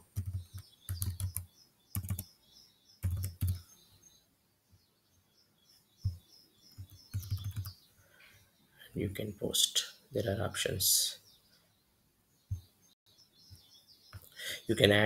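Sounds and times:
keyboard keystrokes and clicks: 0:00.0 - 0:02.3, 0:03.0 - 0:03.6, 0:06.0 - 0:07.8
faint bird chirps: 0:00.0 - 0:14.9.

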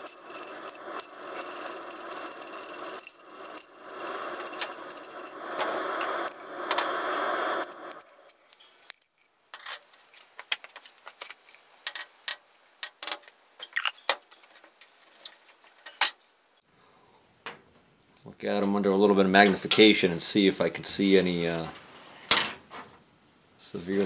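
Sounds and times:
jar of steel balls rattling: 0:00.0 - 0:14.6
steel balls clinking: 0:00.0 - 0:16.1.

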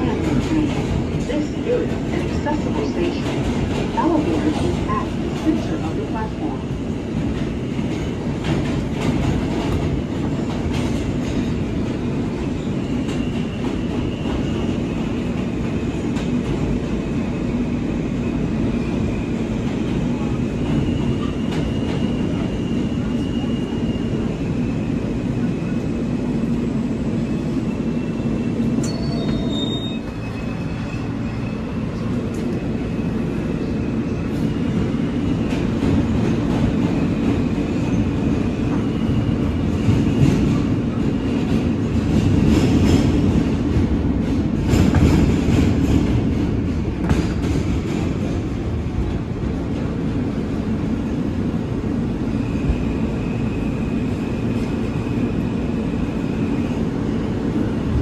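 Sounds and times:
rail clicks: 0:00.0 - 0:06.5
subway wheels rumbling on rail: 0:00.0 - 0:58.0
high wheel squeal: 0:27.6 - 0:32.0.

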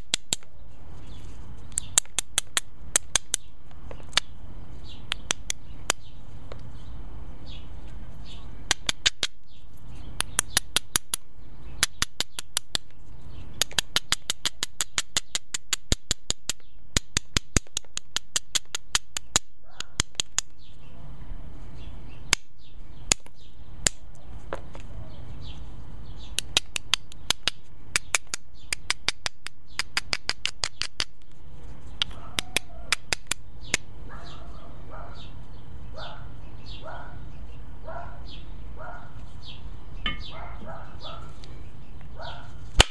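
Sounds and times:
hammerstone clicking on stone: 0:00.0 - 0:00.5, 0:01.7 - 0:04.3, 0:05.1 - 0:06.1, 0:08.6 - 0:09.4, 0:10.2 - 0:12.9, 0:13.6 - 0:20.5, 0:23.1 - 0:24.0, 0:26.3 - 0:31.2, 0:32.0 - 0:33.9.

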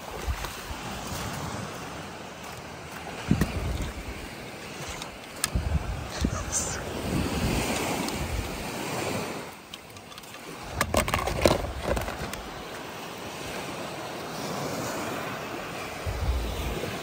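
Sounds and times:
wind on microphone: 0:00.0 - 0:02.0, 0:03.1 - 0:09.6, 0:10.4 - 0:17.0
surf washing on a beach: 0:00.0 - 0:17.0.

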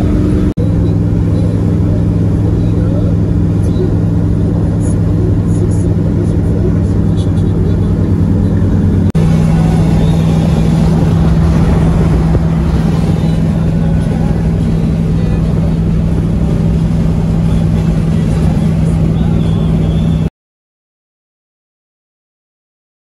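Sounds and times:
car engine drone: 0:00.0 - 0:20.3.

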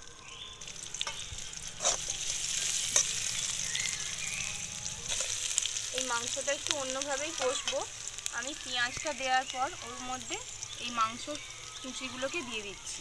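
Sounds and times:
onions sizzling in hot oil: 0:00.0 - 0:13.0
metal spatula scraping pan: 0:01.0 - 0:03.6.

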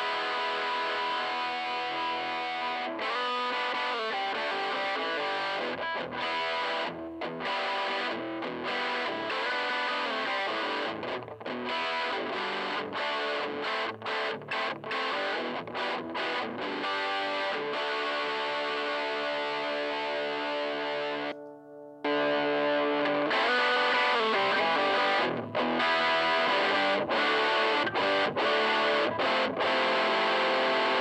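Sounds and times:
distorted electric guitar riff: 0:00.0 - 0:31.0.

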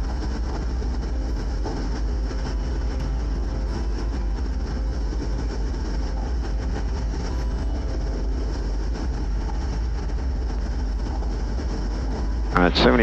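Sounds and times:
light aircraft engine low rumble: 0:00.0 - 0:13.0.

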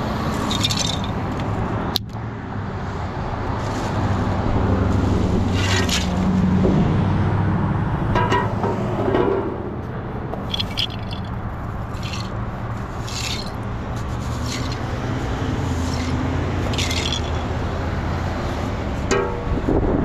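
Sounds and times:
push broom scraping concrete: 0:04.9 - 0:06.4, 0:11.8 - 0:17.5
steady low rumble: 0:06.2 - 0:14.2.

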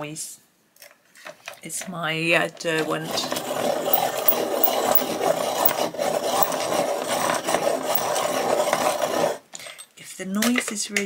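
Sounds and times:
pencil sharpener grinding: 0:03.4 - 0:09.2.

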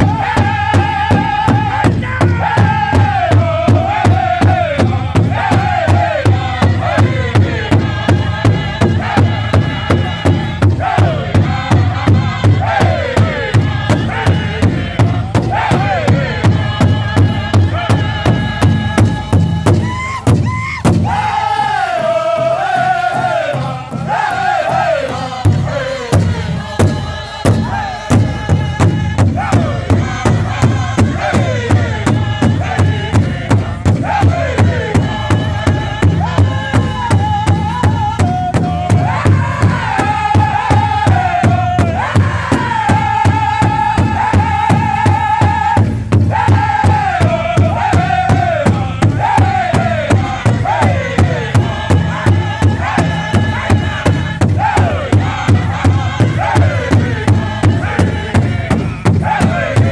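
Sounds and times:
bass drum beating: 0:00.0 - 0:59.9
men and women singing: 0:00.0 - 0:59.9.

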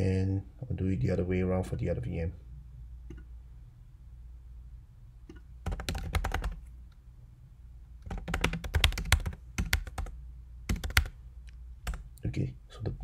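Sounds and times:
faint low hum: 0:00.0 - 0:13.0
keyboard typing: 0:05.3 - 0:06.6, 0:08.0 - 0:11.2, 0:11.8 - 0:12.2.

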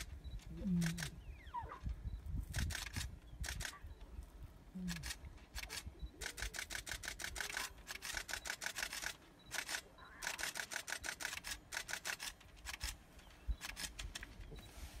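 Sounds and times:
camera shutter burst clicks: 0:04.9 - 0:13.0.

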